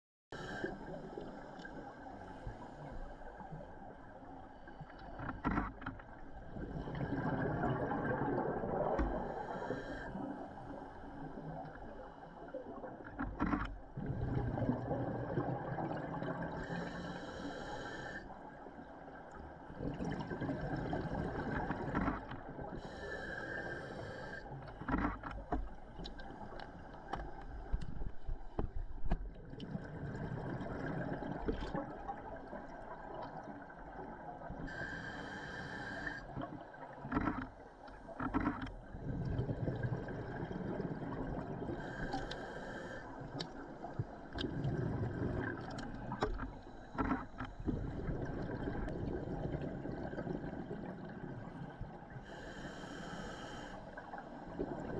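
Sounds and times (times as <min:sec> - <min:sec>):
regulator hissing inhalations: 0:16.7 - 0:18.2, 0:22.8 - 0:24.5, 0:34.7 - 0:36.2, 0:41.8 - 0:43.1, 0:52.2 - 0:53.8.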